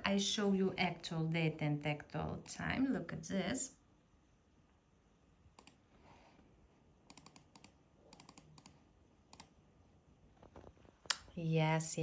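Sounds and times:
laptop keys clicking: 7.1s - 9.5s.

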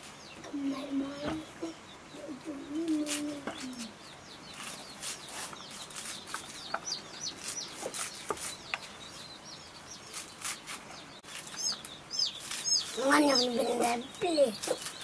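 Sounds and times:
high bird chirps: 0.1s - 15.0s
knife cutting leafy greens: 2.9s - 3.7s, 10.1s - 10.8s.

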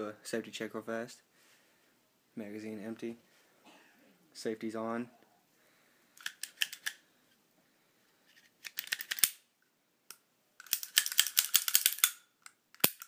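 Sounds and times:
pistol action metallic clicks: 8.6s - 9.4s, 10.1s - 13.0s.

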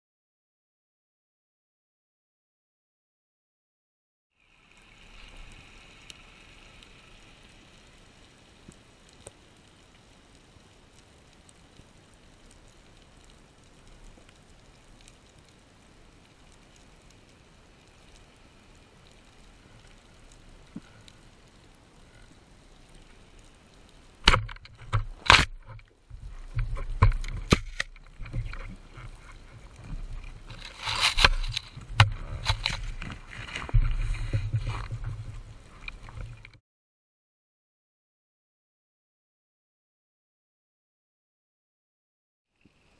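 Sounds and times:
faint underwater crackle: 4.3s - 36.6s, 42.5s - 42.9s
low rushing of water: 4.4s - 36.6s
speargun firing crack: 24.3s - 24.6s
spear knocking against rock: 24.3s - 25.6s.

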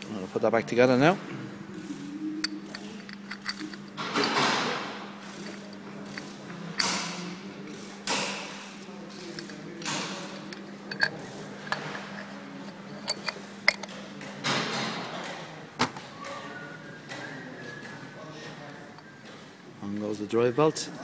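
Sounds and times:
metal parts scraping: 1.9s - 7.1s, 8.1s - 14.0s
metallic clicks and knocks: 9.2s - 15.3s.

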